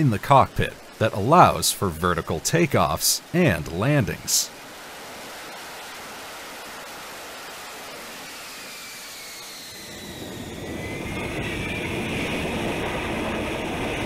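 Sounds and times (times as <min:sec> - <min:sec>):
jet engine hissing: 0:07.5 - 0:14.0
rumble with rising whine: 0:08.4 - 0:14.0.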